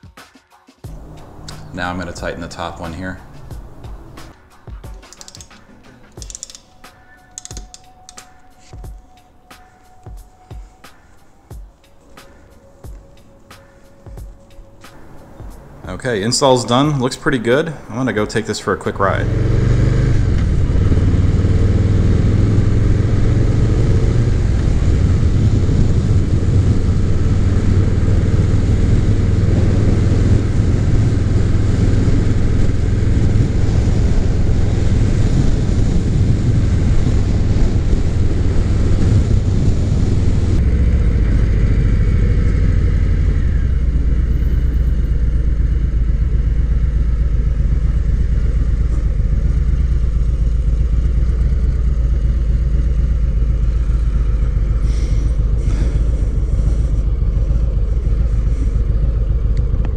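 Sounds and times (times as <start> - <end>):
motorcycle engine running: 0.8 - 9.0, 11.4 - 59.9
wind noise on microphone: 19.6 - 45.4.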